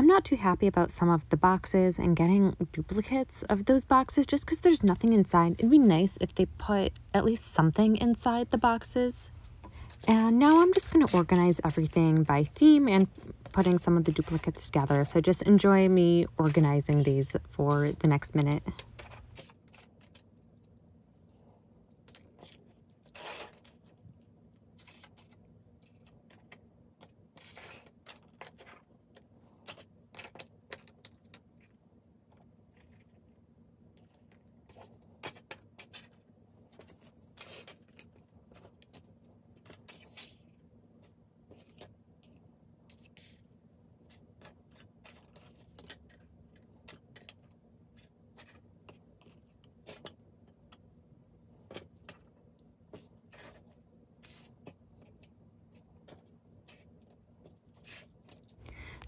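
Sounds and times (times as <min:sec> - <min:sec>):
faint steady hum: 0:00.0 - 0:19.5, 0:58.4 - 0:59.0.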